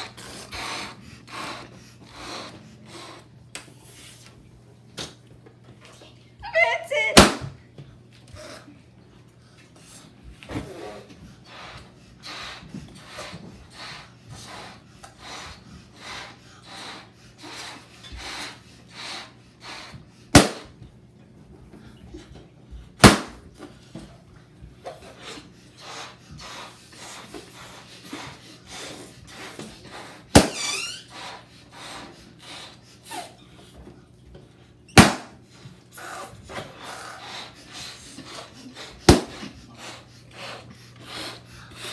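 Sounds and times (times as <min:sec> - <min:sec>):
breath blowing up balloons: 0:00.0 - 0:04.2, 0:09.9 - 0:20.8, 0:24.9 - 0:33.4, 0:35.0 - 0:41.9
balloons popping: 0:07.2 - 0:07.5, 0:20.4 - 0:20.7, 0:23.0 - 0:23.4, 0:30.3 - 0:30.9, 0:35.0 - 0:35.3, 0:39.1 - 0:39.4.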